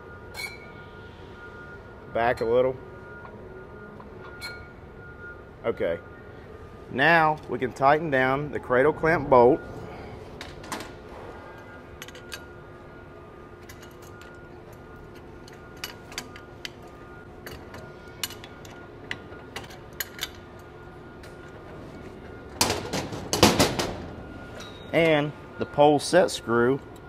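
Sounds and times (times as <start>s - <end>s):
quiet background music: 0.0s - 27.0s.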